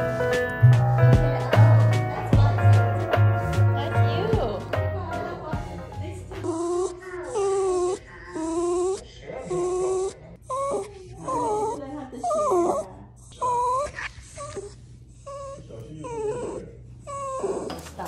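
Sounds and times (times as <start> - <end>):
dog whining and wailing: 6.4 - 18.0.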